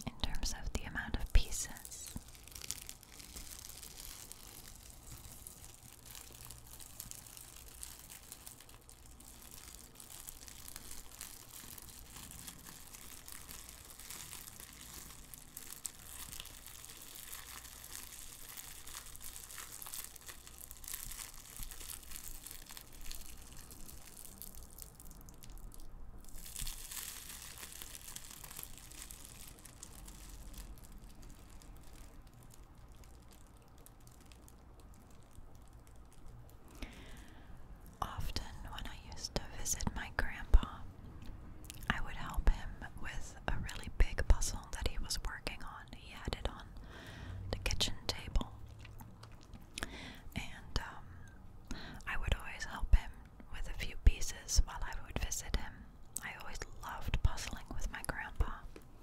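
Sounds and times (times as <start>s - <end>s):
plastic shrink-wrap crinkling: 0.4s - 40.8s.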